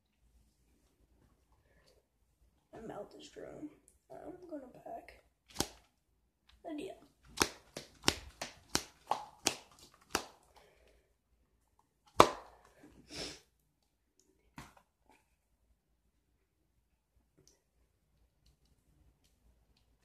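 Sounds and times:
loud snap: 12.2s - 12.5s.

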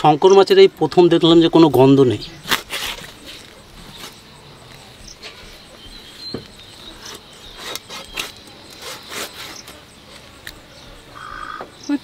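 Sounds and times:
knife scraping through skin: 2.4s - 4.2s.

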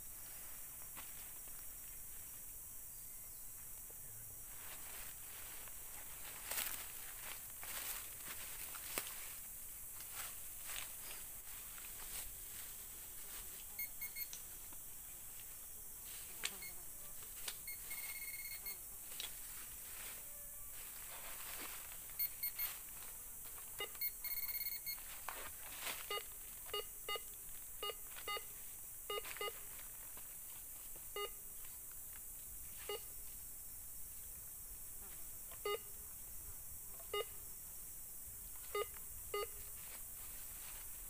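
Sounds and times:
metal detector beeping: 13.8s - 14.4s, 17.6s - 18.8s, 22.2s - 22.8s, 23.8s - 25.1s, 26.0s - 28.5s, 29.1s - 29.6s, 31.2s - 31.4s, 38.6s - 39.7s.

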